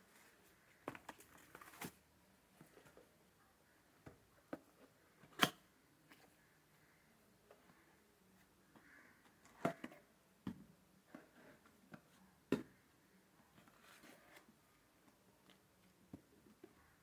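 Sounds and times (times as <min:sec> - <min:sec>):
cardboard and paper rustling: 0:00.1 - 0:02.0, 0:13.6 - 0:14.6.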